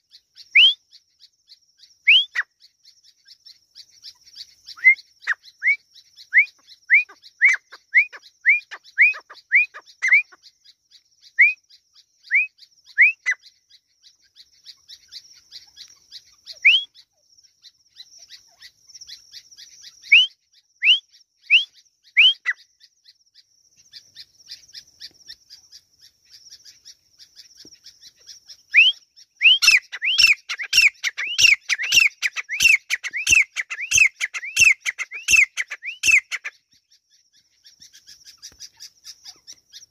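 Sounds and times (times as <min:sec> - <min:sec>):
bird whistled calls: 0:00.0 - 0:00.8, 0:02.0 - 0:02.5, 0:04.1 - 0:10.4, 0:11.3 - 0:13.5, 0:14.6 - 0:17.1, 0:18.2 - 0:22.7, 0:27.8 - 0:39.9.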